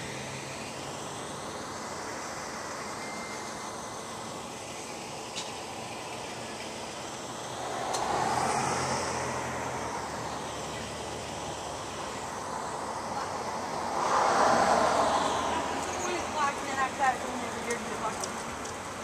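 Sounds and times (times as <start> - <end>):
steady traffic hiss: 0.0 - 19.0
vehicle passing: 7.3 - 18.3.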